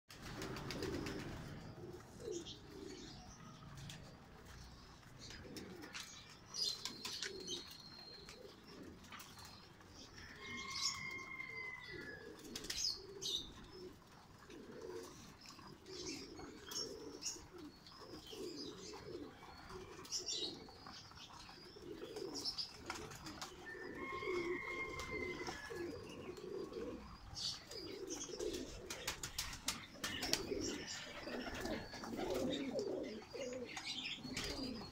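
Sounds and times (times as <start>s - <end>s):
wings flapping: 0.1s - 1.6s, 28.4s - 32.6s
pigeons cooing: 0.1s - 34.9s.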